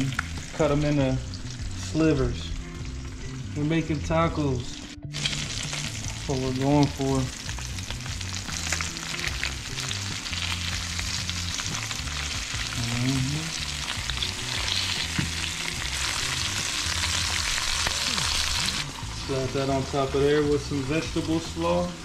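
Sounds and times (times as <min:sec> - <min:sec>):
fish fillets sizzling in oil: 0:05.1 - 0:22.0.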